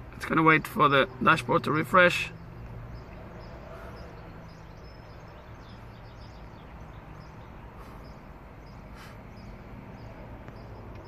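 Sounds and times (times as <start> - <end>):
faint bird chirps: 2.3 - 11.0.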